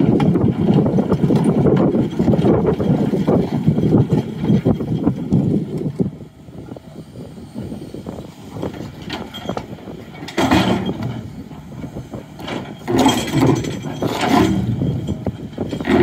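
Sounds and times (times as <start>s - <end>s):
excavator engine running: 0.0s - 16.0s
steel bucket scraping boulders: 8.6s - 16.0s.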